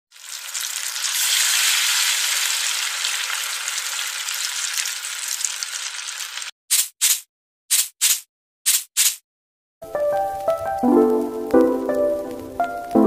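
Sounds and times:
beans sizzling in hot oil: 0.1s - 6.5s, 9.8s - 13.0s.

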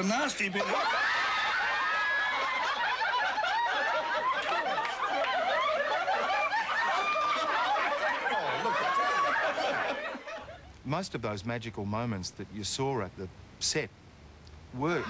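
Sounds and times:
audience laughter: 0.4s - 10.6s.

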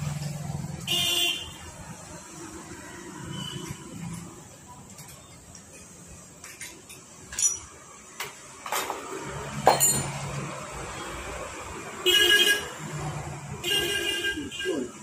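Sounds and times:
metal parts clinking: 6.4s - 7.8s, 9.7s - 10.2s.

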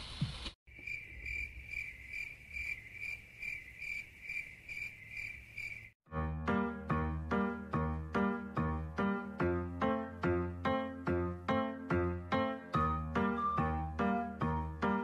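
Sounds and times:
cricket chirping: 0.7s - 6.0s
piano music: 6.1s - 15.0s.

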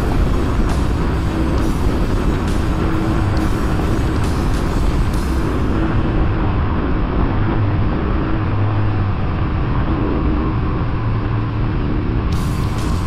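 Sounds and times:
dirt bike engine running: 0.0s - 6.2s.

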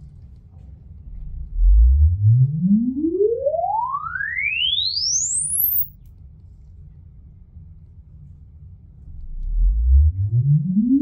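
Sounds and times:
rising sine sweep tone: 1.1s - 5.9s, 9.1s - 11.0s.

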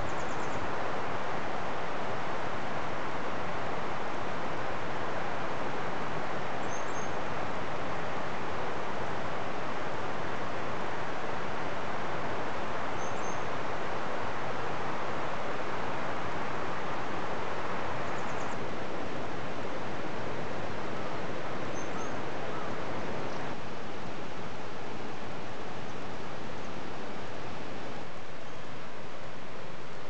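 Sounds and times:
faint high bird chirps: 0.0s - 0.6s, 6.6s - 7.2s, 13.0s - 13.5s, 18.0s - 18.6s, 21.7s - 22.7s
river rushing: 0.0s - 30.0s.

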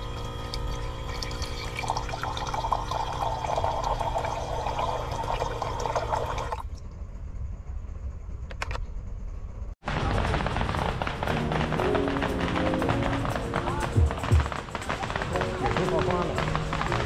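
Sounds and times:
water dispenser pump humming: 0.0s - 6.6s
water pouring into mug: 0.0s - 6.6s.

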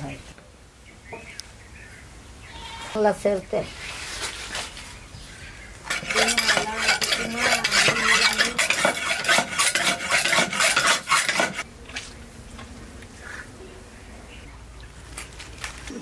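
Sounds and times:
metal blade scraping chicken: 5.9s - 11.6s.

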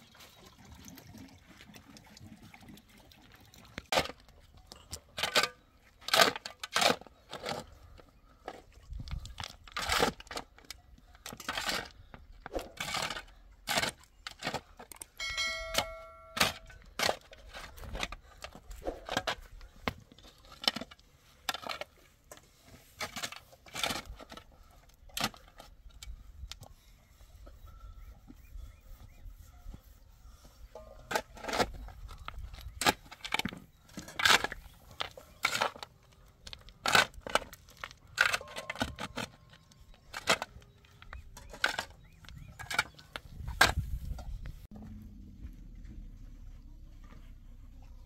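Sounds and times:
shovel digging stony soil: 4.9s - 7.9s, 8.9s - 26.1s, 30.7s - 44.5s
brief ringing tone: 15.2s - 16.6s.

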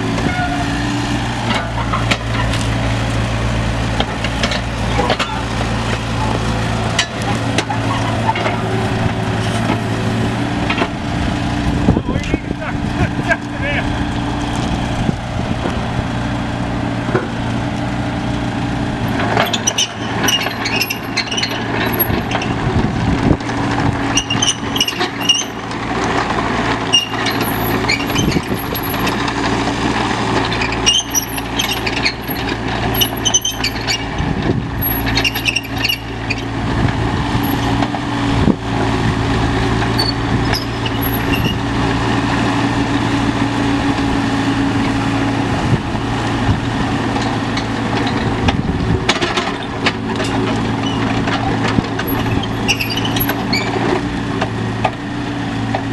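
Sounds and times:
diesel excavator running: 0.0s - 55.9s
high-pitched squeaks and clinks: 19.5s - 22.3s, 24.2s - 25.6s, 26.9s - 29.2s, 30.8s - 34.0s, 34.8s - 36.5s, 37.4s - 37.8s, 40.0s - 41.6s, 52.1s - 53.8s.

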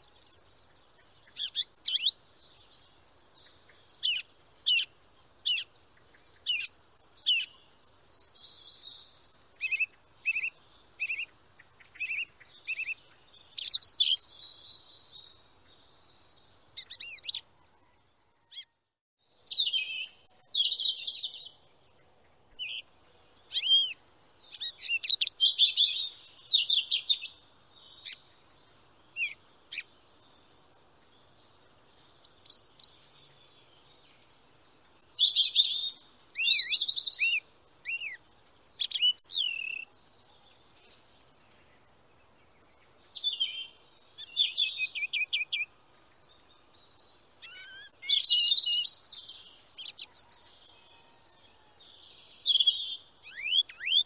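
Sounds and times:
songbirds chirping and singing: 0.0s - 54.0s.

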